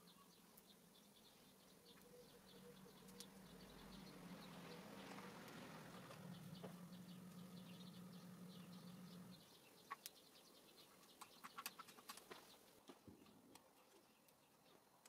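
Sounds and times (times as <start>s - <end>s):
low steady hum: 0.0s - 11.4s
faint high chirping: 0.0s - 14.8s.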